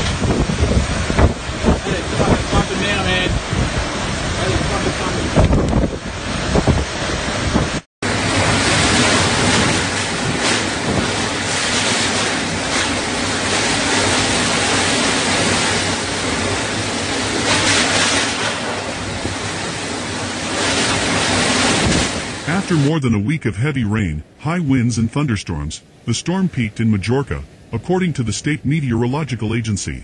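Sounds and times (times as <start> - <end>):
wind buffeting microphone: 0.0 - 22.6
storm wind and rain: 0.0 - 30.0.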